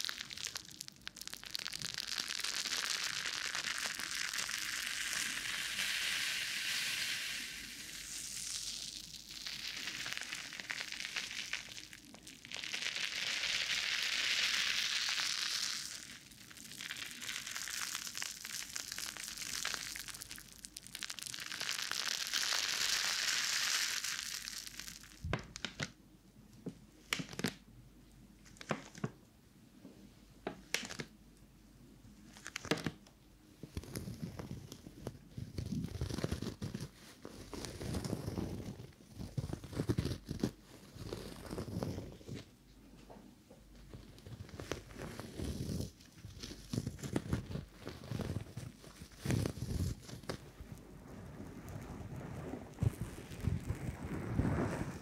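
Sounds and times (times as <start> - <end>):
plastic wrapper crinkling: 0.0 - 26.0, 27.1 - 27.6, 28.4 - 29.2, 30.6 - 31.2, 32.2 - 42.5, 43.8 - 55.0
foam sponges squeezed on microphone: 44.4 - 55.0.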